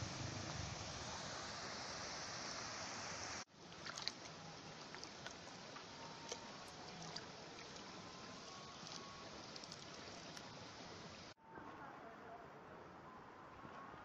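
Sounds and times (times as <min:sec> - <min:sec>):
rushing river water: 0:00.0 - 0:11.4
water lapping around stones: 0:03.6 - 0:11.0
small water splashes: 0:03.6 - 0:11.3.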